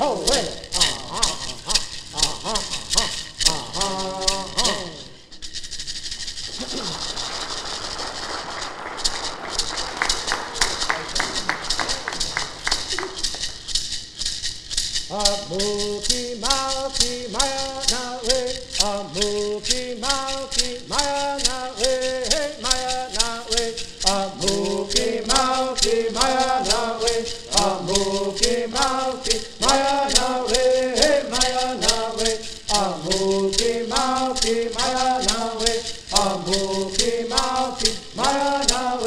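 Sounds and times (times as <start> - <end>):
men singing in unison: 0.0 - 5.2, 15.1 - 39.0
gourd rattles shaken: 0.0 - 39.0.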